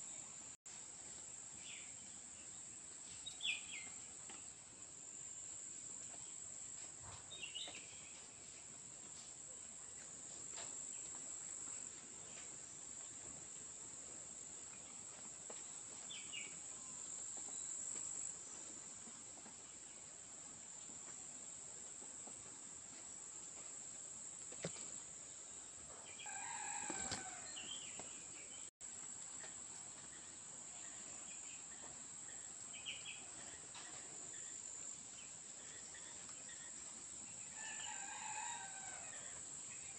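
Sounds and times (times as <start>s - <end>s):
insect chorus: 25.6s - 28.6s, 30.1s - 39.9s.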